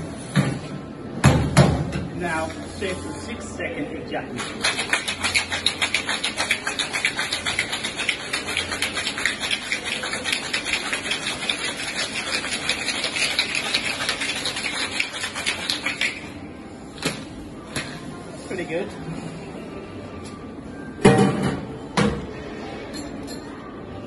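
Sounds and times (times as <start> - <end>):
ice rattling in a cocktail shaker: 4.4 - 16.3.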